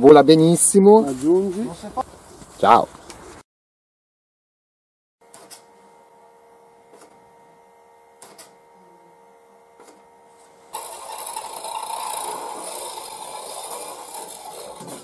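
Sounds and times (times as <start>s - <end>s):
electric motor humming: 5.2s - 15.0s.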